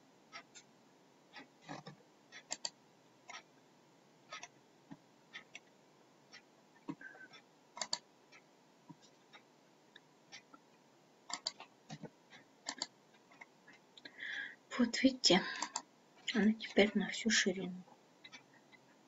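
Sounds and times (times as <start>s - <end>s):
mouse buttons clicking: 7.8s - 8.0s, 11.3s - 12.0s.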